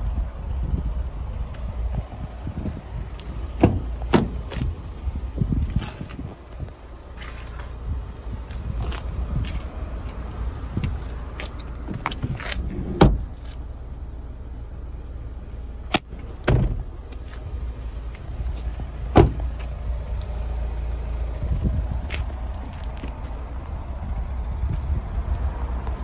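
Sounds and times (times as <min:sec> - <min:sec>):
low rumble: 0:00.0 - 0:26.0
car door and seat clunks: 0:01.6 - 0:04.8, 0:10.8 - 0:13.6, 0:15.9 - 0:17.5, 0:18.6 - 0:19.7.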